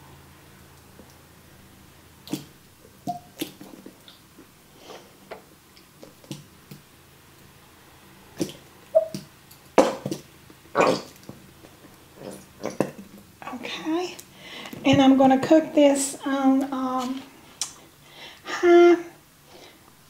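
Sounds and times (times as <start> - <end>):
squeeze bottle squeaks: 8.9 - 9.2.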